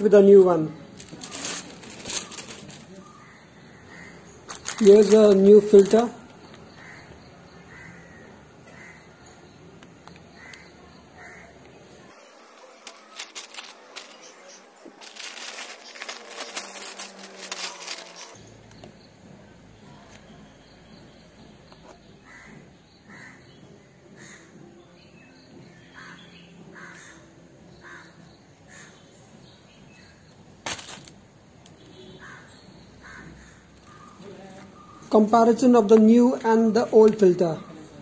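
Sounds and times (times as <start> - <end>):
birds calling: 0.1 - 18.4, 21.0 - 38.0
plastic packaging crinkling: 0.9 - 3.0, 4.5 - 6.2, 12.4 - 18.4, 30.6 - 31.2.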